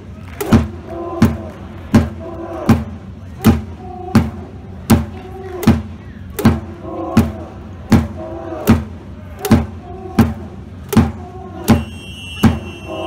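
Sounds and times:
rhythmic drum thumps: 0:00.4 - 0:12.8
crowd chanting: 0:00.5 - 0:04.4, 0:06.6 - 0:13.0.

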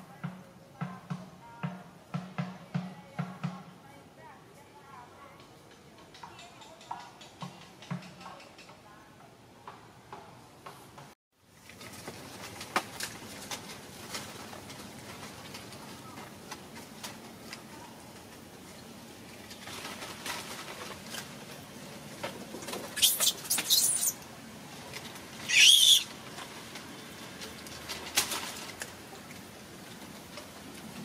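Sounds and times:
high-pitched animal calls: 0:23.0 - 0:24.2, 0:25.4 - 0:26.1.

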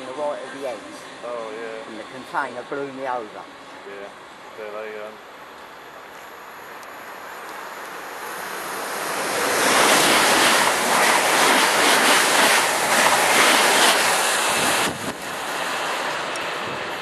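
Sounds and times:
train passing at speed: 0:00.0 - 0:17.0
wind buffeting microphone: 0:09.3 - 0:17.0.

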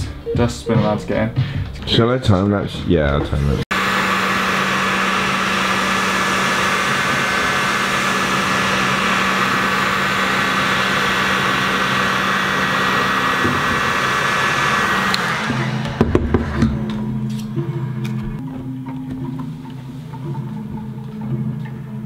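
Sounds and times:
heat gun blowing: 0:03.7 - 0:16.8.

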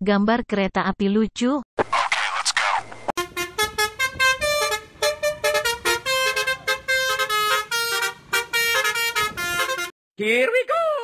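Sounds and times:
vehicle horns honking: 0:03.2 - 0:09.9.

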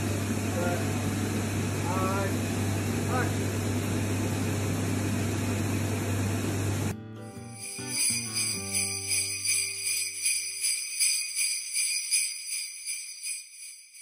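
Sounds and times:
sleigh bells shaken: 0:07.3 - 0:14.0.

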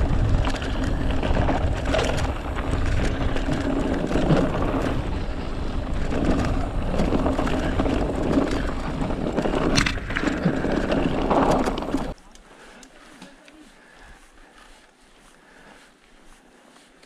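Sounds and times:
bike rattling and knocking: 0:00.0 - 0:12.2
low microphone rumble: 0:00.0 - 0:12.2.

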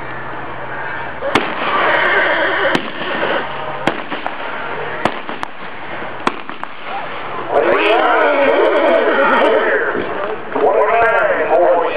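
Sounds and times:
revolver gunshots: 0:01.2 - 0:07.1.

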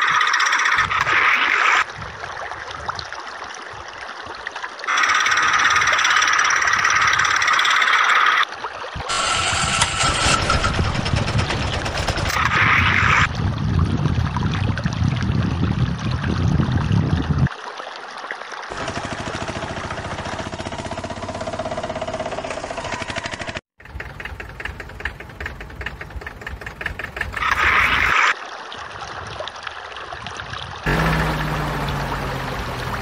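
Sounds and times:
engine chugging: 0:09.1 - 0:13.3, 0:18.7 - 0:27.6, 0:30.9 - 0:33.0.

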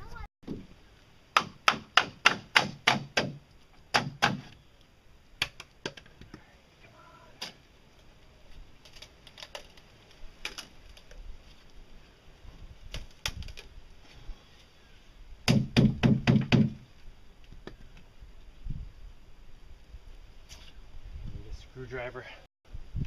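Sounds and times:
clicks and cracks of prying: 0:08.8 - 0:11.2.

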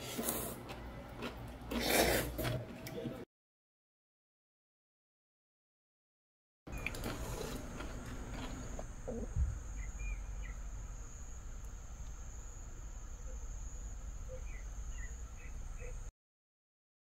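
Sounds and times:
insects trilling: 0:06.7 - 0:16.1.

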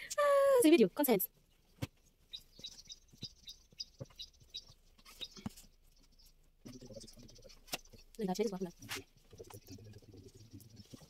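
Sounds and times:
small bird chirping: 0:01.0 - 0:11.0.

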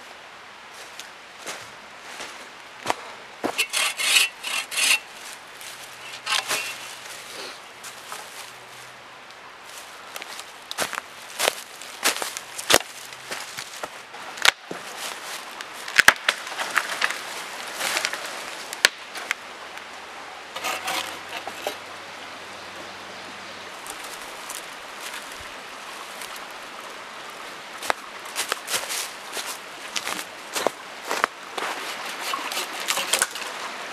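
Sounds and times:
footsteps crunching dry leaves: 0:00.8 - 0:09.0, 0:09.7 - 0:14.0, 0:14.7 - 0:19.3, 0:23.8 - 0:26.4, 0:27.8 - 0:32.8.

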